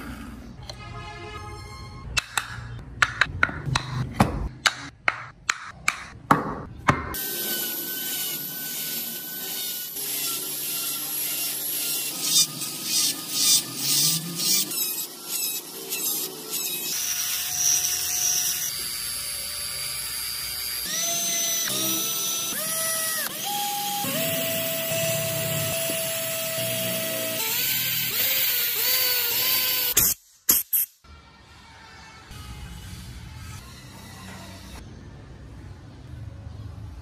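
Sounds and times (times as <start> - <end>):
electric drill boring into wood: 7.2 - 30.0
rotary tool whining: 7.2 - 30.0.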